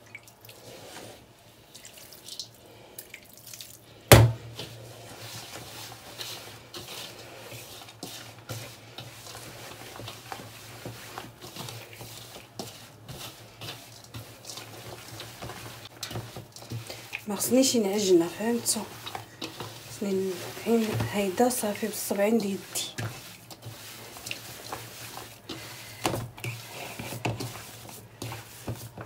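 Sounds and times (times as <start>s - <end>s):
wet dough squishing: 0.0s - 29.0s
sharp knock: 4.1s - 4.5s.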